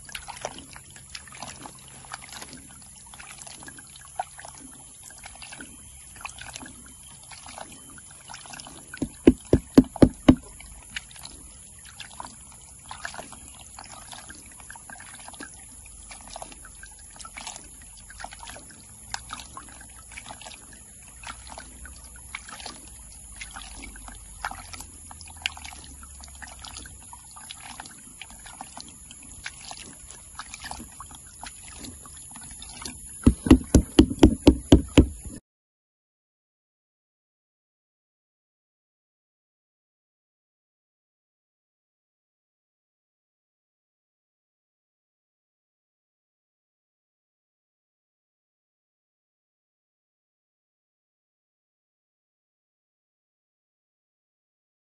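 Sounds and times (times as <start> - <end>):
water sloshing in a pan: 0.0 - 35.4
water splashing and trickling: 0.0 - 35.4.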